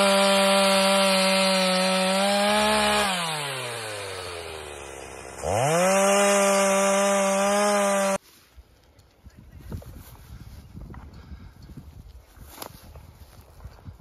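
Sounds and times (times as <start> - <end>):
chainsaw cutting a log: 0.0 - 8.2.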